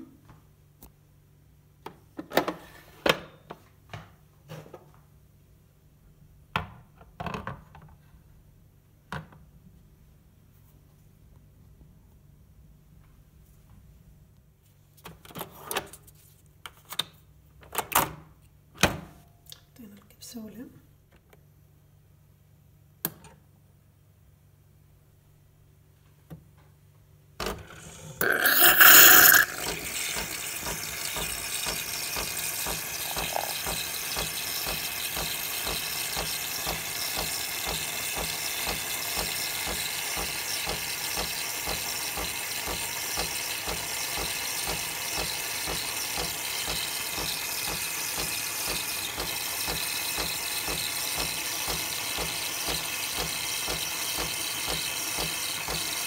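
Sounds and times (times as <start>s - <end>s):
steam spurting and hissing: 27.8s - 37.3s
pump pulsing: 27.8s - 56.0s.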